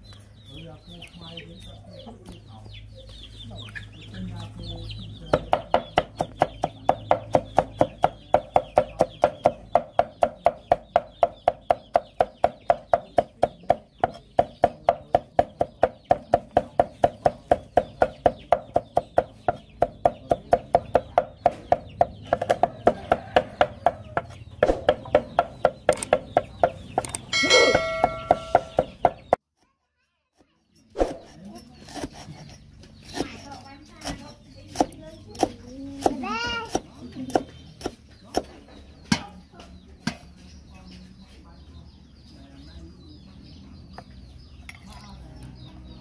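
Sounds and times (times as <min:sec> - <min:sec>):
cleaver chopping on wooden block: 0:05.3 - 0:29.4.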